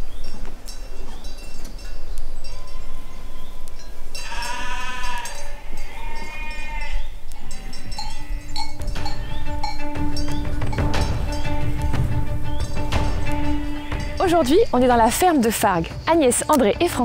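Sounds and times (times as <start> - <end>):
small bells tinkling: 0.0 - 11.5
sheep bleating: 4.2 - 8.6, 13.4 - 14.3.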